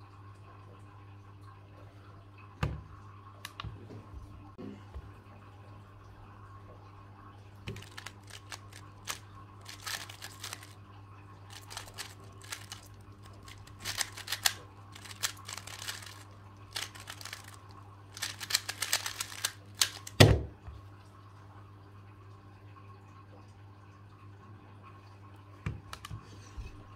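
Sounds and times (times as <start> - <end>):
plastic puzzle cube clicking: 7.7 - 10.8, 11.5 - 20.3, 25.8 - 26.1.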